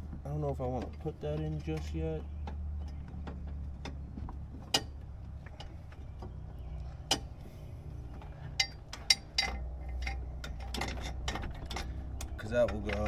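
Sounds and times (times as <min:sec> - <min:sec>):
steady low hum: 0:00.0 - 0:13.0
metal tools clinking: 0:08.3 - 0:13.0.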